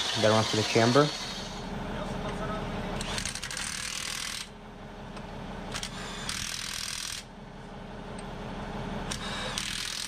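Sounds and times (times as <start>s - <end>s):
cordless drill boring through steel: 0.0s - 1.6s, 5.8s - 7.2s, 9.1s - 10.0s.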